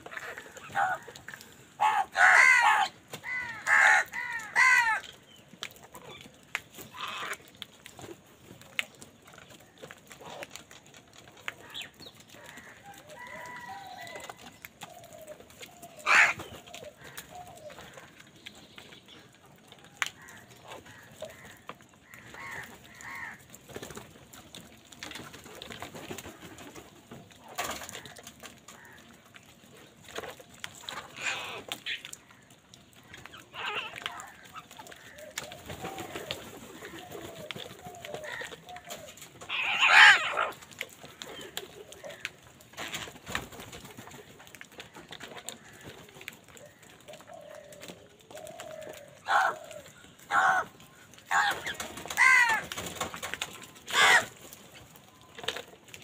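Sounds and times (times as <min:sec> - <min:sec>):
crows cawing: 0:00.0 - 0:05.1, 0:06.9 - 0:07.5, 0:11.6 - 0:14.3, 0:16.0 - 0:18.3, 0:19.9 - 0:23.6, 0:27.8 - 0:29.2, 0:31.1 - 0:42.5, 0:44.8 - 0:52.8, 0:53.9 - 0:54.3.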